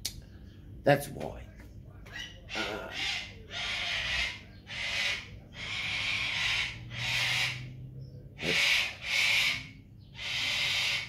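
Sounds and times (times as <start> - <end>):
cockatoo screeching: 2.1 - 7.8, 8.4 - 11.0.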